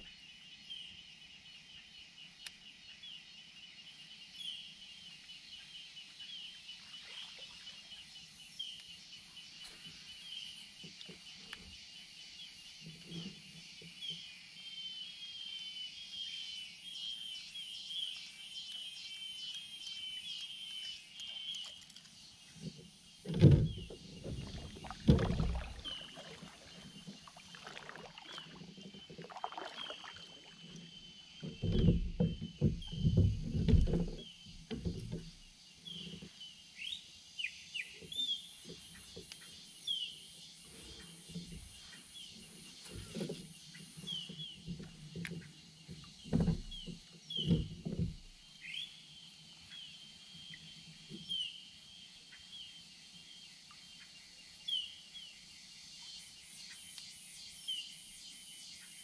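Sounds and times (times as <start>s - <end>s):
paddle splashing in water: 22.6s - 35.5s.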